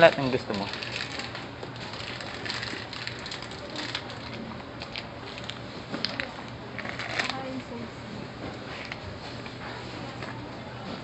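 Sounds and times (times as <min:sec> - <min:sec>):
plastic snack packet crinkling: 0:00.0 - 0:07.5
supermarket background hum: 0:00.0 - 0:11.0.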